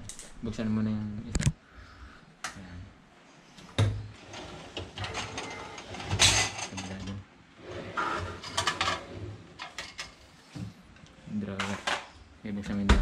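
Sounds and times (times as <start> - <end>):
metal dish rack rattling: 4.4 - 7.1, 8.0 - 10.2.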